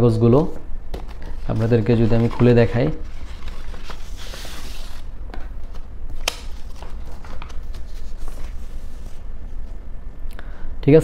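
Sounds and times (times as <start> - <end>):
steady low hum: 0.0 - 11.0
paper rustling: 0.9 - 9.8.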